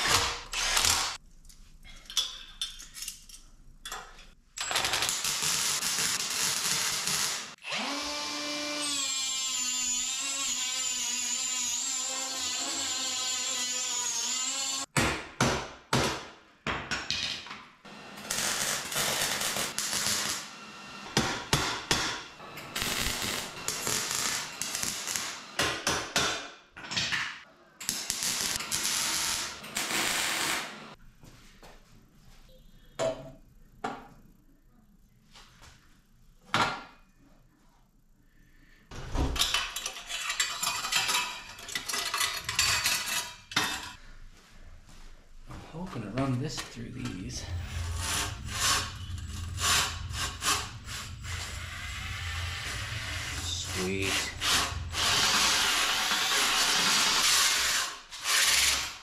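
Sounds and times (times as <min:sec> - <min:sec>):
arc welding bursts: 0:05.1 - 0:07.6, 0:18.2 - 0:20.5, 0:22.7 - 0:25.4, 0:27.9 - 0:30.8, 0:47.7 - 0:59.0
grinder whining: 0:47.5 - 0:59.0.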